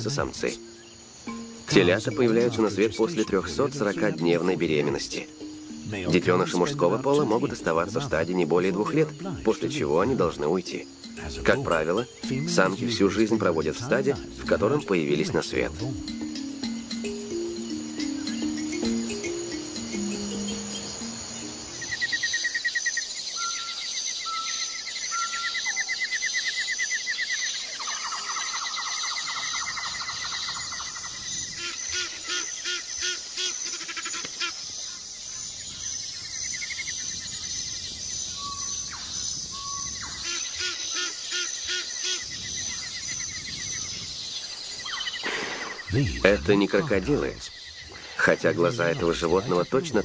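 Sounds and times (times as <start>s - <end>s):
fast pulsed trills and chirps: 0.0s - 50.0s
insects trilling: 0.0s - 50.0s
lower pulsed animal calls: 0.0s - 50.0s.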